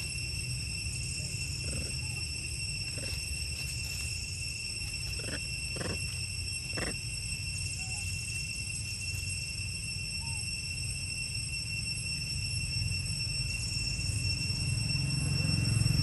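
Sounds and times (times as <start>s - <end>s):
macaques giving short calls: 1.3s - 2.3s, 2.9s - 3.2s, 5.1s - 7.0s
macaques squabbling: 1.3s - 2.3s, 2.9s - 3.4s, 5.0s - 7.1s.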